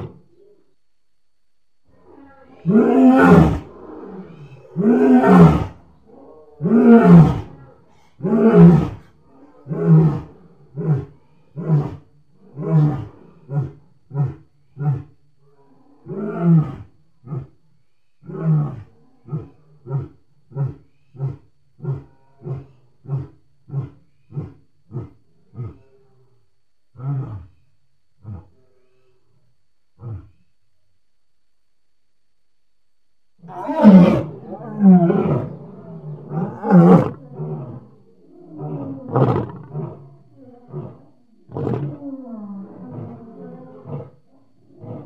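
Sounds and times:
lion roaring: 2.0s - 7.6s, 8.2s - 17.6s, 26.9s - 27.6s, 30.0s - 30.5s, 33.4s - 45.0s.

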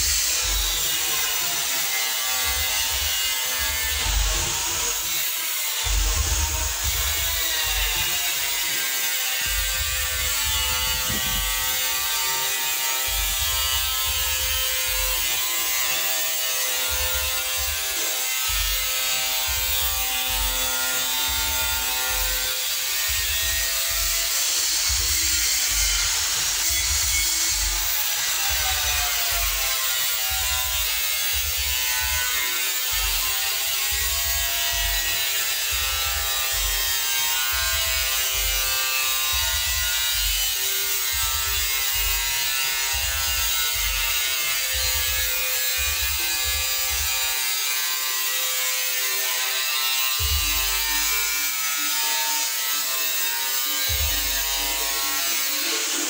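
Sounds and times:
electronic music with bass beat: 5.8s - 8.7s, 9.4s - 12.3s, 13.1s - 15.3s, 16.9s - 22.4s, 33.9s - 37.0s, 39.3s - 40.4s, 41.1s - 47.1s, 50.2s - 51.5s, 53.9s - 55.0s.

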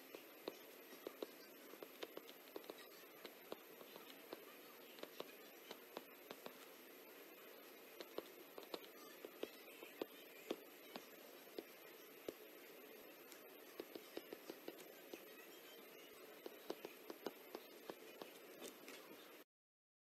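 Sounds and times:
stylus tapping on glass screen: 16.4s - 18.4s.

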